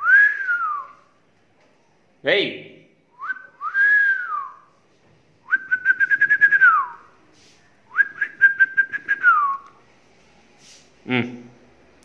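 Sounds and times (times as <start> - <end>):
person whistling: 0.0 - 1.0, 3.2 - 4.7, 5.5 - 7.1, 7.9 - 9.6.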